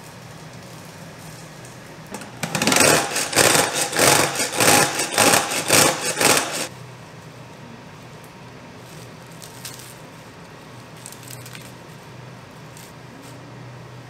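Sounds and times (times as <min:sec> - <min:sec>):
salad spinner whirring: 0:02.1 - 0:06.7.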